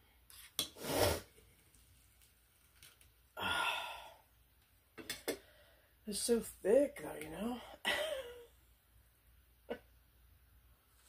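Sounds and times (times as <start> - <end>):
person breathing in sharply: 3.4 - 4.2
person sighing: 3.4 - 4.3.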